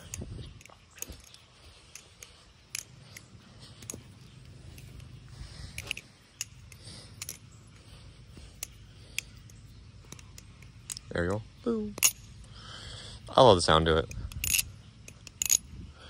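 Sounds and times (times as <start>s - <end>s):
metallic clicks of balisong trainer: 0.0s - 7.6s, 8.5s - 11.2s, 13.3s - 15.8s
low wind rumble: 0.0s - 16.0s.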